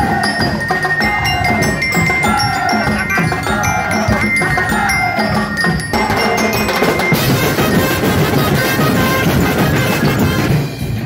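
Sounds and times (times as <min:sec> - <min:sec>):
steady high tone: 0:00.0 - 0:08.1
fast drumming on many drums: 0:00.0 - 0:11.0.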